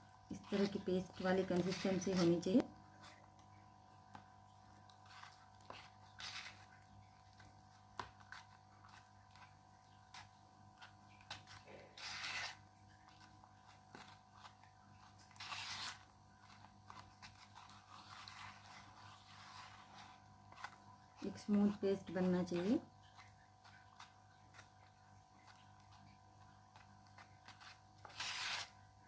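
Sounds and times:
spoon scraping paste in tub: 0.4s - 3.4s, 4.8s - 24.7s.

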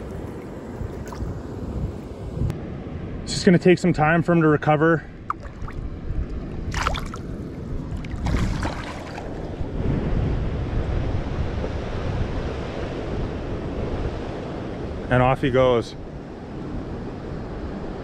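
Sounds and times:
wind on microphone: 0.0s - 3.3s, 5.1s - 18.0s
fish tail splashing water: 5.3s - 5.8s, 6.6s - 9.6s.

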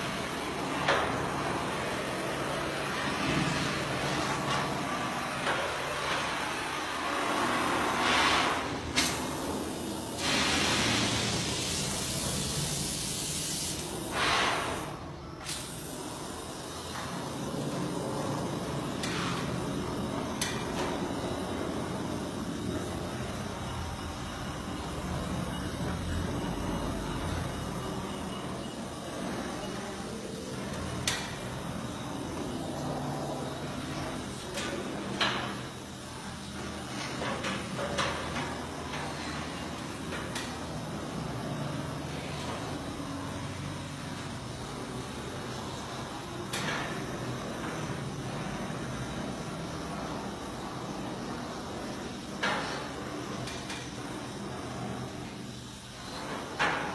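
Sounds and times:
gas torch hissing: 0.0s - 56.4s
gas torch flame rushing: 0.2s - 23.6s.

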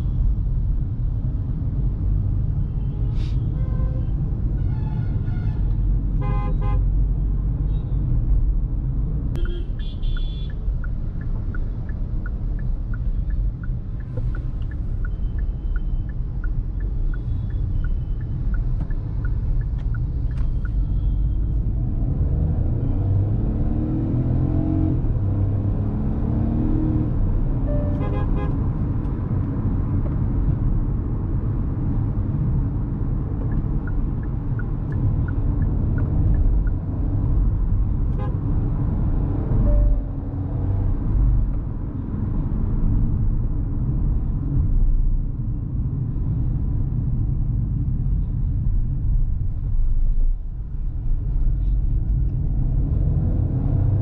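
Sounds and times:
car engine and road rumble: 0.0s - 54.0s
light regular ticking: 10.2s - 21.3s
car horn toots: 27.7s - 28.6s.

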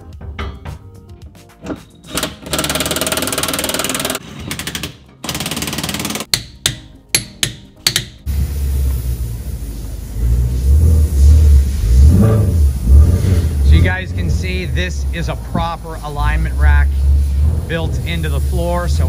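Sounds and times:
background music: 0.0s - 19.0s
tools knocking on metal: 0.1s - 4.8s, 5.6s - 8.2s
impact wrench hammering: 1.6s - 8.3s.

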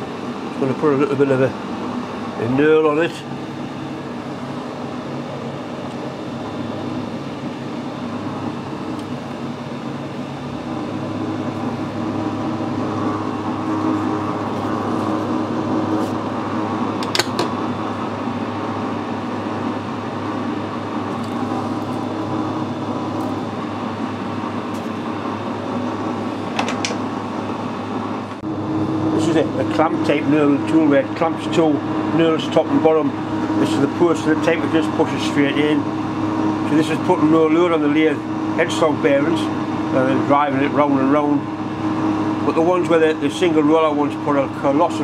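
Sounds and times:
metal lathe running: 0.0s - 45.0s
sharp click: 17.0s - 17.6s.

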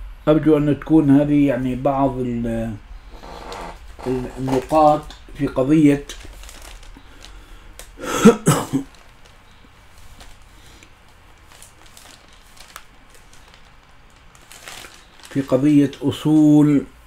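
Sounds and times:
person coughing: 8.0s - 8.9s.

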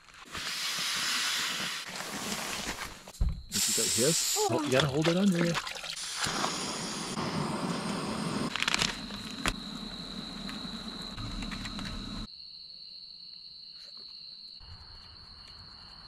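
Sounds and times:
stove burner hissing: 0.3s - 2.5s, 3.5s - 4.6s, 6.0s - 12.3s
cricket trill: 5.4s - 16.0s.

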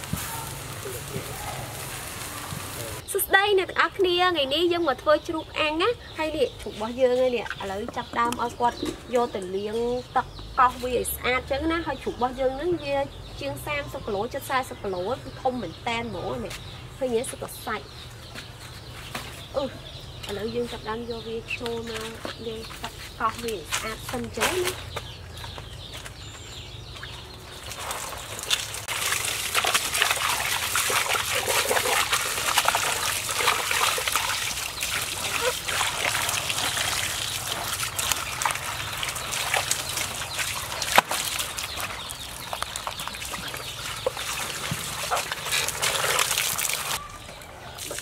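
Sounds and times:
hose water spraying and splashing: 0.0s - 3.1s, 27.5s - 47.0s.

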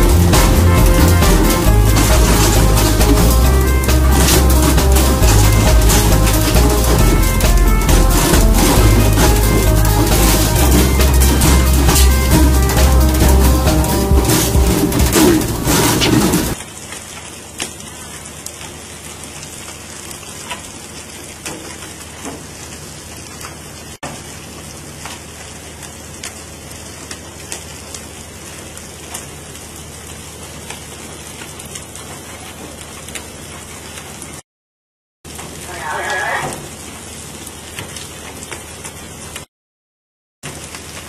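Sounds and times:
sea water rushing: 0.0s - 16.8s
wind: 15.1s - 34.4s, 35.3s - 39.5s.

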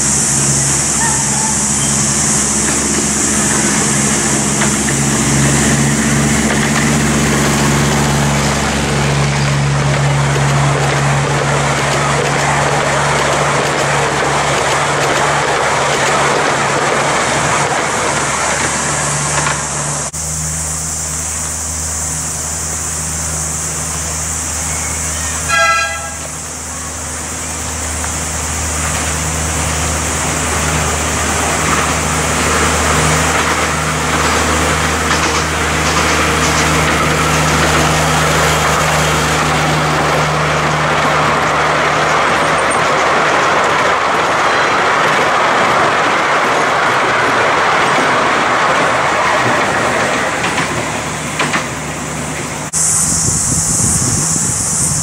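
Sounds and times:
miniature train rolling on track: 0.0s - 55.0s
train horn toot: 0.9s - 2.2s, 24.6s - 26.5s.

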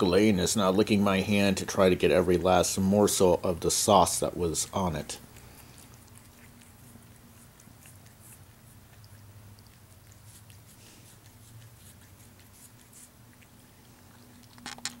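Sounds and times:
low steady hum: 0.0s - 15.0s
cat tongue licking: 5.1s - 14.6s.

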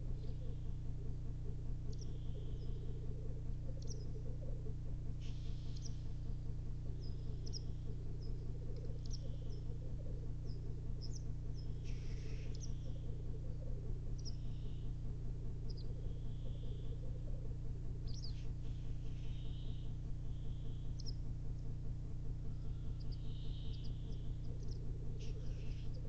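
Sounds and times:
grouse bubbling song: 0.0s - 26.0s
steady low hum: 0.0s - 26.0s
grouse hissing call: 11.8s - 14.8s.

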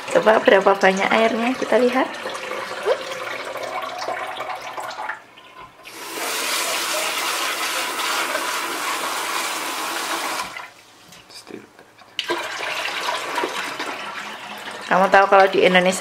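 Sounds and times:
kitchen tap running: 0.0s - 10.8s, 12.0s - 16.0s
rinse water sloshing off rice: 5.8s - 10.8s, 12.2s - 15.7s.

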